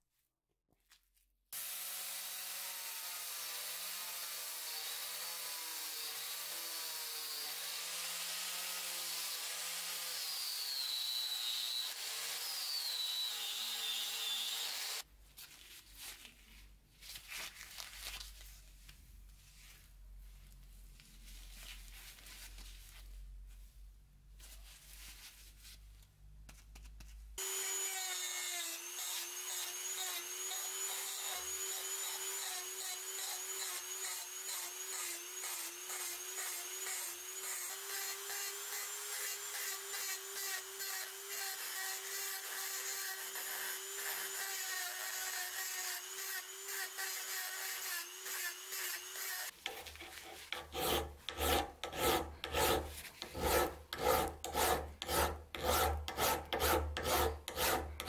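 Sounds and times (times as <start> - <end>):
rotary tool grinding metal: 27.4 - 58.0
hand file rasping on steel: 28.6 - 58.0.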